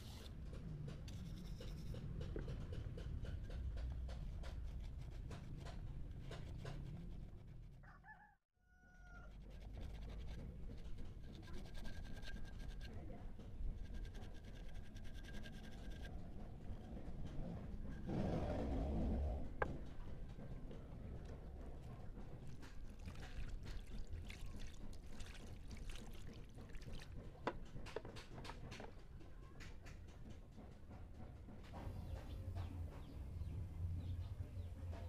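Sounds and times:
rooster crowing: 7.8s - 9.3s.

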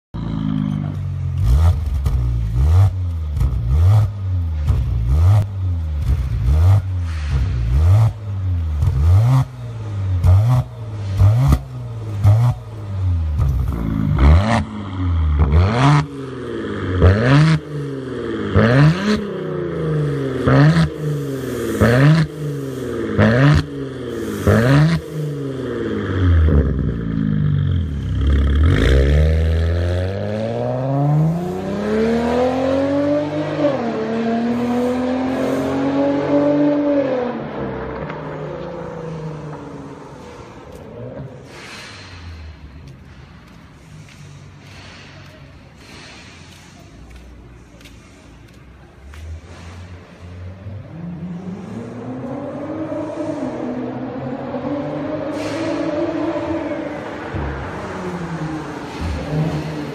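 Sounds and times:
exhaust cracks: 0.2s - 17.8s
car engine revving: 0.2s - 45.0s, 49.1s - 59.9s.

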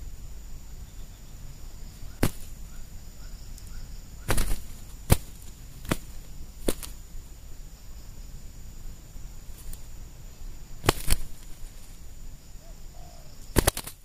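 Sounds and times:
dove wings slapping: 1.9s - 2.7s, 4.2s - 7.1s, 9.4s - 9.9s, 10.8s - 12.1s, 13.5s - 14.0s.

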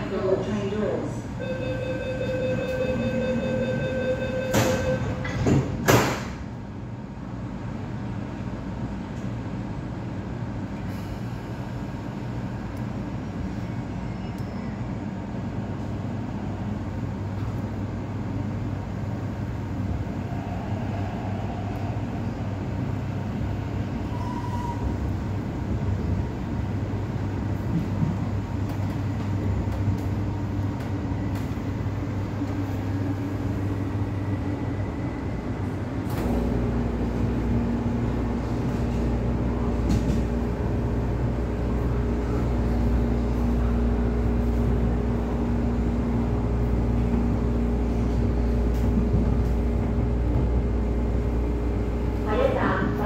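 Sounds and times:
train rumble and hum: 0.0s - 53.0s
door warning beeps: 1.4s - 5.4s
train doors thudding shut: 4.4s - 6.5s.

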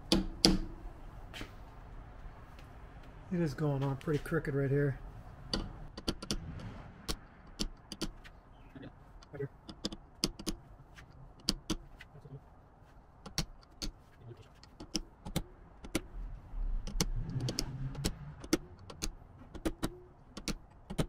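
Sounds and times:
hammer tapping metal drift: 0.0s - 0.8s.

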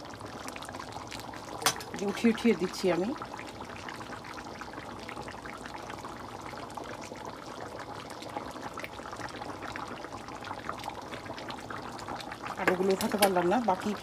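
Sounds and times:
pot bubbling on the boil: 0.0s - 14.0s
small pops and crackles: 12.5s - 13.5s.

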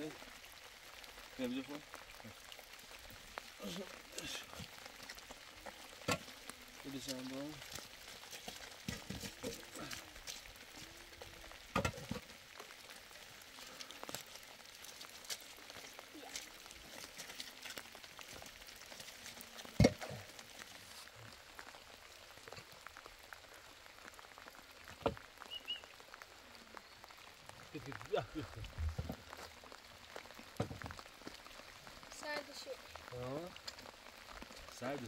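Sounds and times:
light rain pattering: 0.0s - 35.0s.

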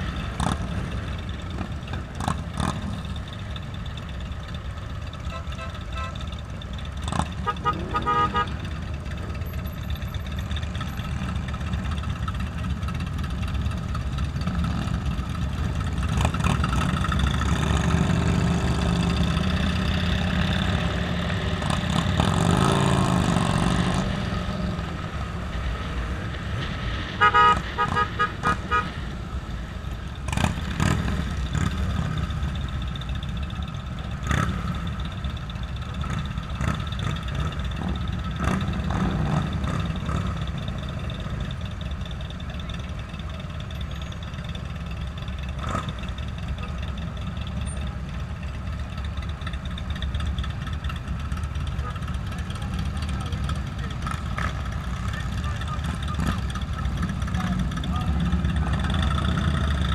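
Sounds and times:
motorcycle engine revving: 0.0s - 3.4s, 6.9s - 29.0s, 30.1s - 41.6s, 49.9s - 59.9s
motorcycle engines running: 0.0s - 59.9s
short horn beeps: 5.3s - 6.2s.

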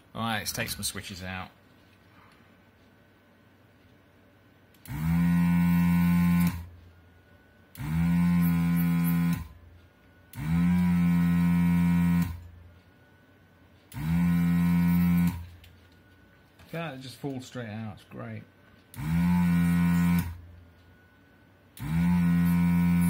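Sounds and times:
vacuum pump humming: 4.7s - 17.0s, 18.6s - 23.0s.

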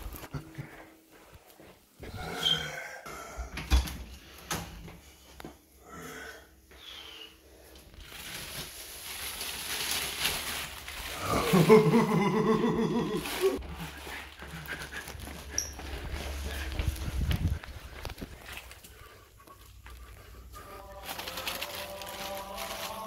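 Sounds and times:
plastic wrap crinkling: 7.8s - 23.0s.

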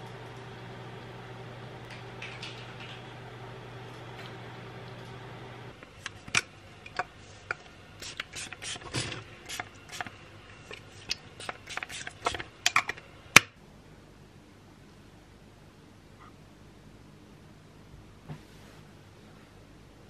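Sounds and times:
spray bottle spritzing mist: 8.0s - 10.1s, 11.4s - 12.4s.

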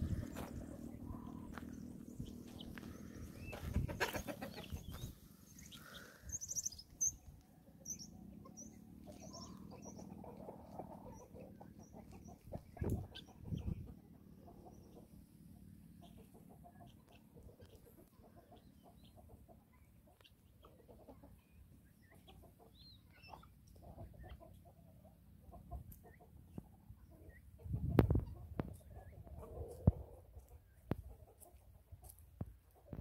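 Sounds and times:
guinea fowl calling: 0.0s - 7.2s.

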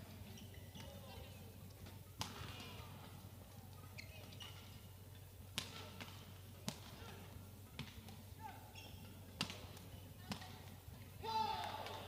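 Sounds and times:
shoes squeaking on court floor: 0.0s - 6.4s, 7.0s - 10.7s
rackets hitting shuttlecock: 1.8s - 4.8s, 5.4s - 8.3s, 8.9s - 10.8s.

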